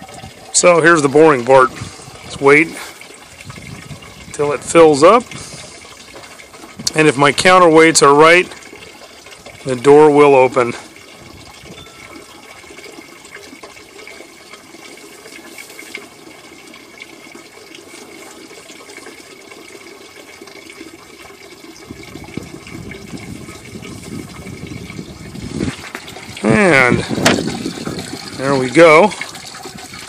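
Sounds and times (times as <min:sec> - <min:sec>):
water pouring into plastic bucket: 0:00.0 - 0:30.0.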